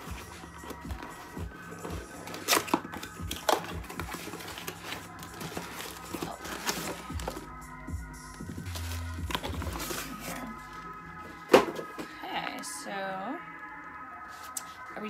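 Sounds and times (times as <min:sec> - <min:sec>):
cardboard flaps rustling and scraping: 0:00.0 - 0:07.4, 0:08.5 - 0:10.6.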